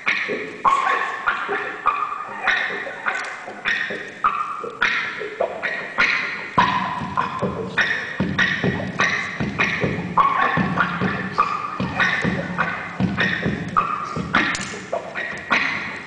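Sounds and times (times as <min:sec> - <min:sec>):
looped electric guitar notes: 0:00.0 - 0:16.0
low drum-like pulse: 0:06.6 - 0:14.5.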